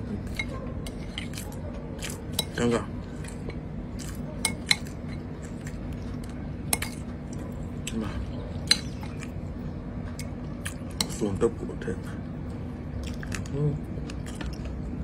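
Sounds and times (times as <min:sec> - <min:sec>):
steady low hum: 0:00.0 - 0:15.0
spoon clinking on ceramic bowl: 0:04.4 - 0:05.3.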